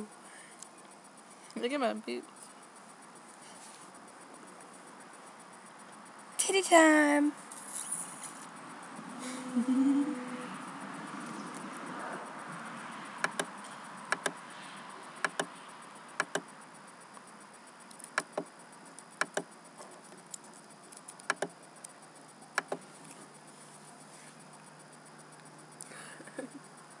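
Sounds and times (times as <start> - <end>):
computer mouse button clicks: 13.2 - 13.5, 15.2 - 15.5.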